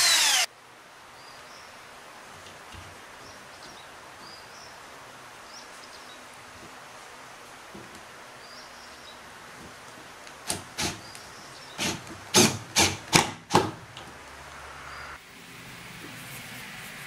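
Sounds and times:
drill driving screw into wood: 0:00.0 - 0:00.5, 0:10.4 - 0:11.0, 0:11.8 - 0:13.8.

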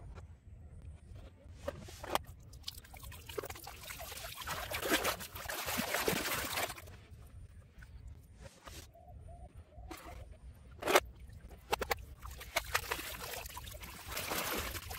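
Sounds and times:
muddy water splashing: 0:02.1 - 0:07.1, 0:09.9 - 0:14.9.

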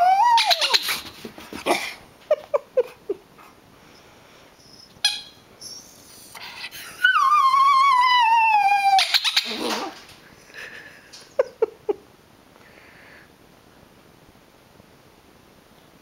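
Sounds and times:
dog howling: 0:00.0 - 0:00.8, 0:07.0 - 0:10.0
squeaker toy squeaks: 0:05.0 - 0:05.8.

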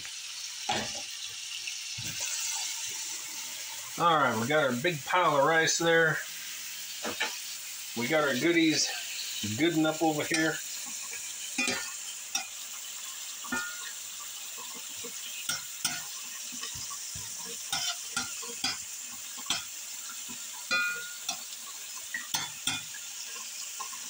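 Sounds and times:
food sizzling in a skillet: 0:00.0 - 0:24.0
metal spatula scraping a pan: 0:11.4 - 0:12.6, 0:15.4 - 0:19.7.

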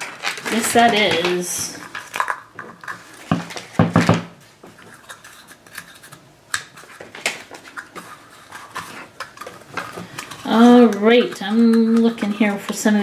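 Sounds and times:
plastic toys knocking on tabletop: 0:03.3 - 0:04.3.

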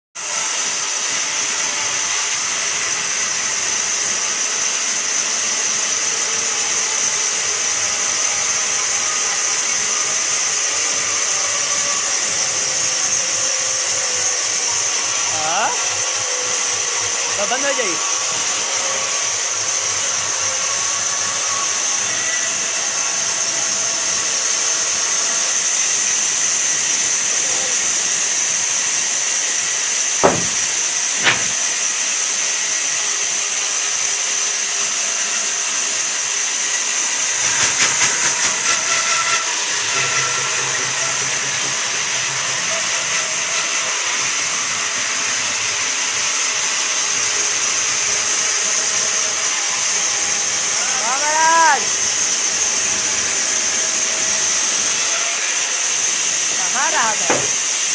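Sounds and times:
band saw cutting wood: 0:00.2 - 0:32.5, 0:36.6 - 0:57.9
brief rattle: 0:30.2 - 0:31.8
sharp knocks: 0:30.2 - 0:31.8, 0:57.3 - 0:57.6.

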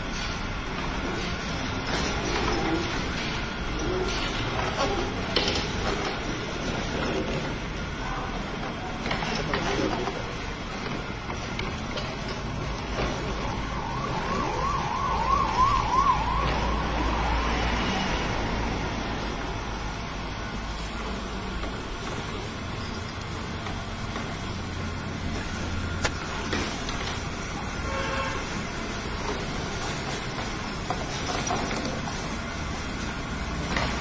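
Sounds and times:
wavering siren-like tone: 0:12.9 - 0:20.6
stone mill grinding rumble: 0:20.8 - 0:34.0.

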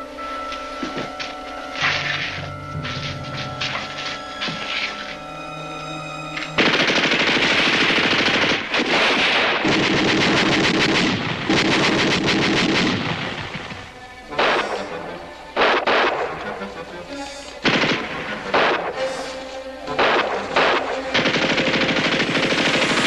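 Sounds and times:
machine-gun fire: 0:06.6 - 0:14.9, 0:15.6 - 0:16.4, 0:17.6 - 0:19.0, 0:19.9 - 0:23.0.

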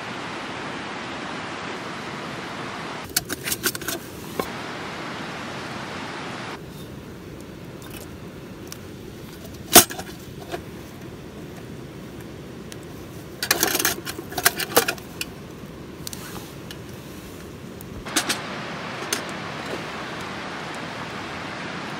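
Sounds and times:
metal lantern clicks and rattles: 0:03.1 - 0:04.0, 0:13.4 - 0:15.4.

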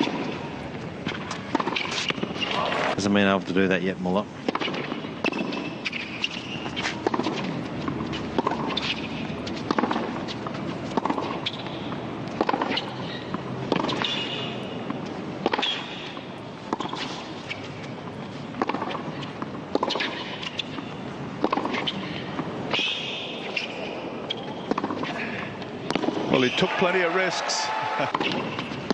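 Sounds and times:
tennis ball struck and bouncing: 0:00.0 - 0:02.8, 0:04.4 - 0:25.2, 0:25.8 - 0:26.3, 0:28.1 - 0:28.9
shoes squeaking on court: 0:00.0 - 0:03.0, 0:04.4 - 0:27.3.

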